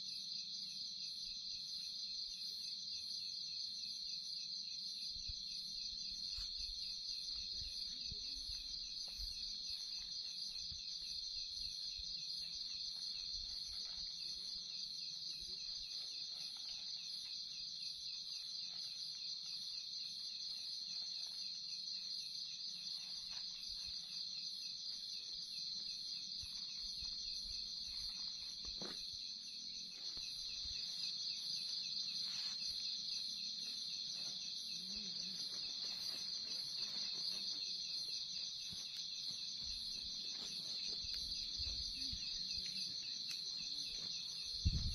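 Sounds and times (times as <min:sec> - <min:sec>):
night insects trilling: 0:00.0 - 0:44.9
rustles of camping gear: 0:06.1 - 0:44.9.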